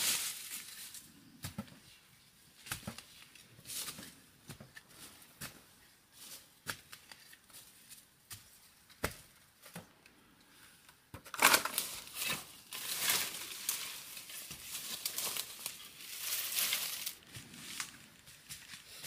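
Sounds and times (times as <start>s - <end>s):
dry twigs and leaves crackling: 0.0s - 1.1s, 11.3s - 19.0s
twigs snapping: 11.3s - 18.9s.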